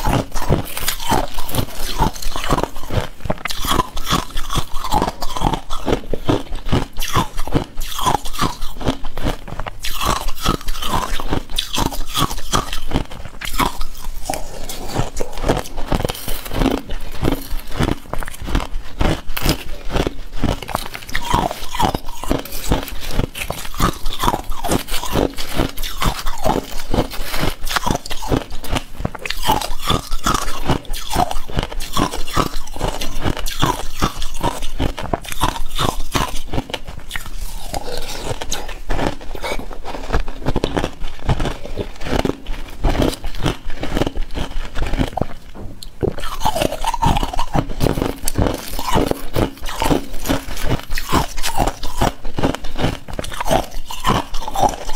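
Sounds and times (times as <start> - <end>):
ice crunching and chewing: 0.0 - 54.9.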